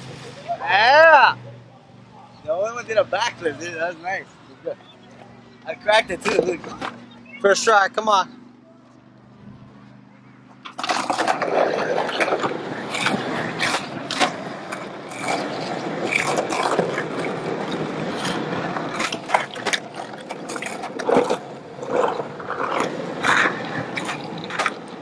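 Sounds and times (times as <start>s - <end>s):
skateboard wheels rolling on concrete: 0.0s - 25.0s
skateboard popping and landing: 10.5s - 25.0s
skateboard grinding on concrete ledge: 10.6s - 25.0s.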